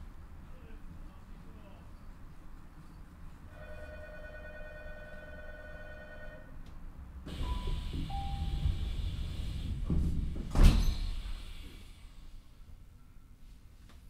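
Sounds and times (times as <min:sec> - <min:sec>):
train doors sliding: 0:07.2 - 0:12.7
doors shutting with a thud: 0:07.3 - 0:11.8.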